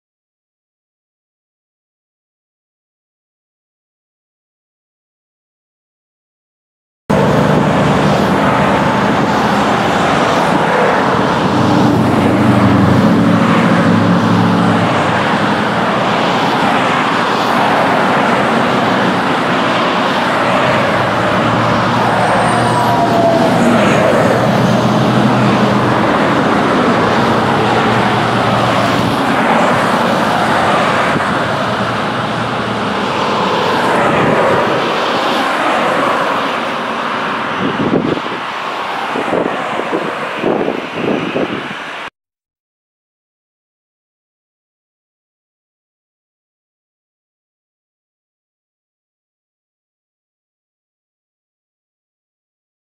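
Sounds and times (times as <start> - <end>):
falling engine whine: 7.1 - 41.8
jet engine roar: 7.1 - 42.1.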